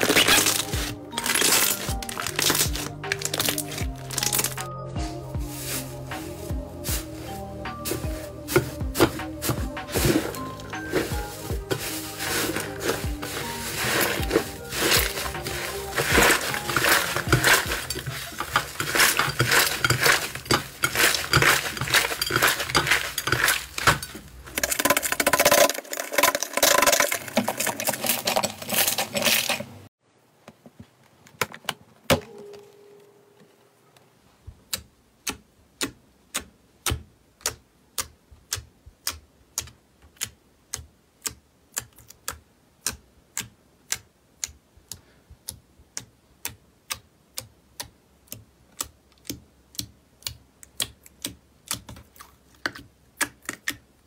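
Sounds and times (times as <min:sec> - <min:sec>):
crunchy slime crackling: 0:00.0 - 0:04.7, 0:11.2 - 0:29.9.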